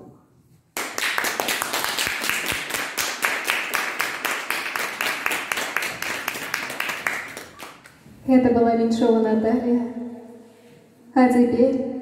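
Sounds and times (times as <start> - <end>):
audience applauding: 0.8 - 8.0.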